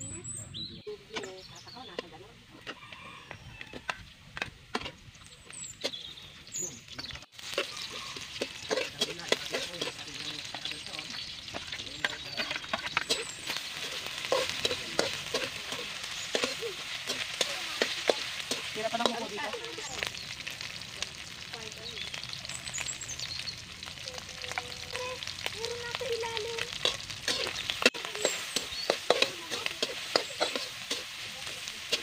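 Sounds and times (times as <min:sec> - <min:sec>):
food sizzling in wok: 0:06.9 - 0:32.0
metal spatula scraping pan: 0:07.4 - 0:10.3, 0:11.5 - 0:19.6, 0:26.7 - 0:32.0.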